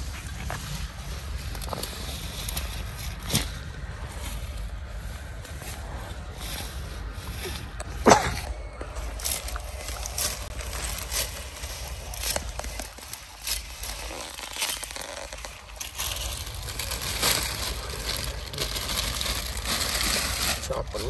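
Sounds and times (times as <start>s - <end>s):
crunching footsteps: 0.0s - 21.0s
low rumble: 0.0s - 21.0s.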